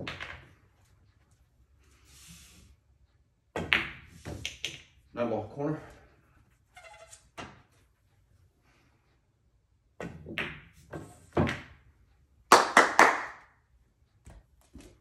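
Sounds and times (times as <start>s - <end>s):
pool balls knocking: 10.0s - 11.8s.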